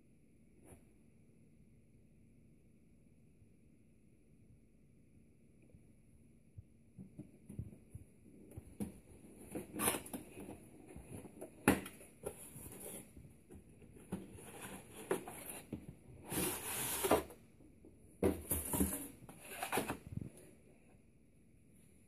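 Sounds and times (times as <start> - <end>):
cardboard scraping and rustling: 8.8 - 17.4, 18.2 - 20.4.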